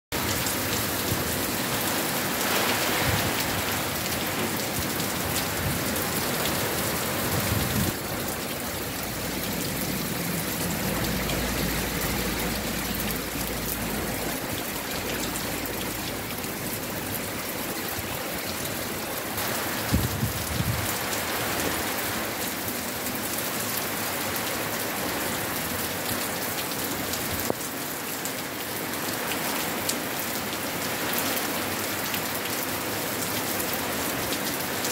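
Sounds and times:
gusting wind: 0:00.1 - 0:22.5
heavy rain: 0:00.1 - 0:34.9.

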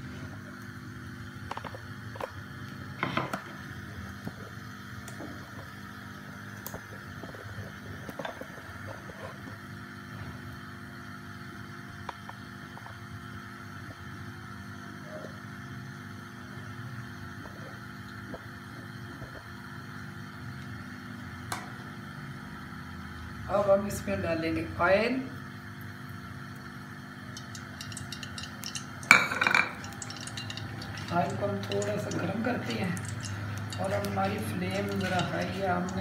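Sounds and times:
gas stove burner hissing: 0:26.0 - 0:36.0
pan clatter: 0:27.3 - 0:36.0.

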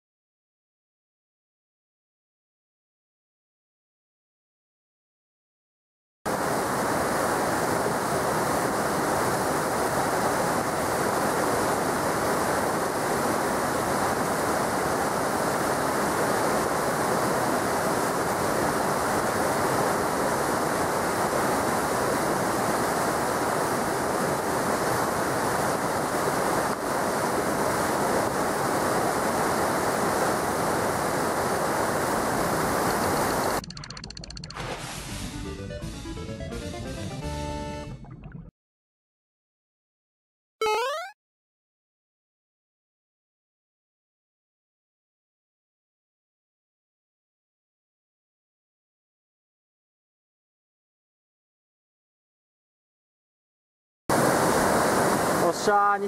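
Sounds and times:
stream rushing over rocks: 0:06.3 - 0:33.5, 0:54.1 - 0:55.8.

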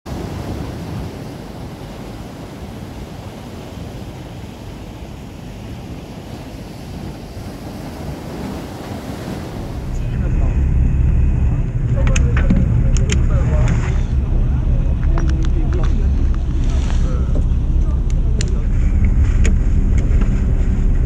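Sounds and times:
waves breaking and washing in: 0:00.0 - 0:21.0
wind rumbling on microphone: 0:00.1 - 0:21.0.

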